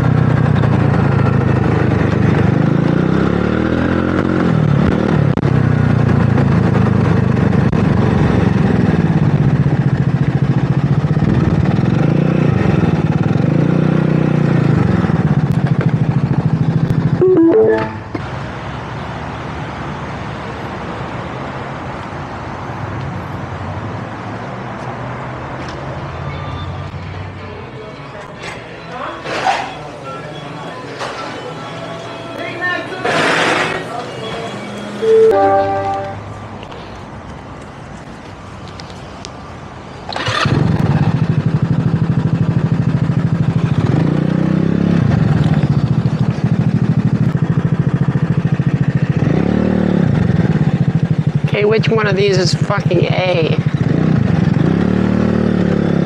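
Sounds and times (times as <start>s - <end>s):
traffic noise: 0.0s - 56.0s
scooter engine starting and idling: 40.0s - 44.1s, 45.0s - 51.4s
scooter engine revving: 40.1s - 51.5s.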